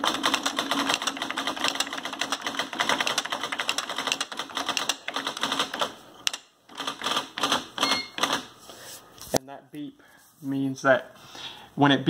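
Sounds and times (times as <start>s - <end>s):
fast typing on electronic typewriter: 0.0s - 8.5s.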